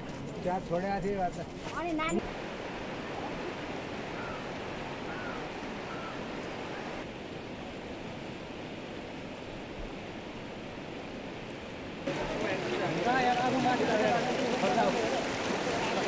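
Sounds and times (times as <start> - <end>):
river rushing over rocks: 12.0 - 16.0.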